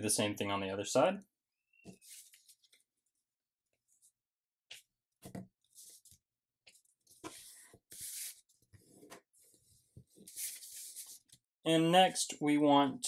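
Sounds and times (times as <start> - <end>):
paper rustling and scraping: 2.0 - 2.8, 7.1 - 11.4.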